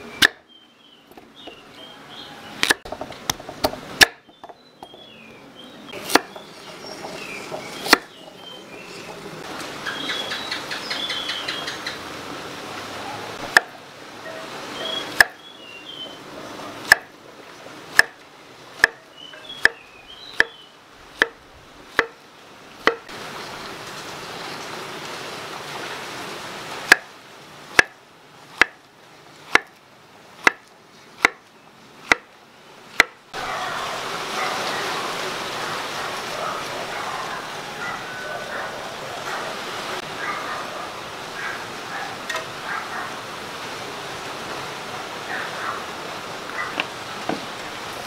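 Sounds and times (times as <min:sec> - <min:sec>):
knife chopping on wooden board: 0:02.6 - 0:04.6, 0:06.0 - 0:06.4, 0:16.9 - 0:17.1, 0:18.0 - 0:18.2, 0:18.8 - 0:19.0, 0:19.6 - 0:19.8, 0:22.0 - 0:22.2, 0:22.8 - 0:23.1, 0:26.9 - 0:27.1, 0:28.6 - 0:28.8, 0:29.5 - 0:29.7, 0:30.4 - 0:31.4, 0:32.0 - 0:32.3, 0:33.0 - 0:33.2.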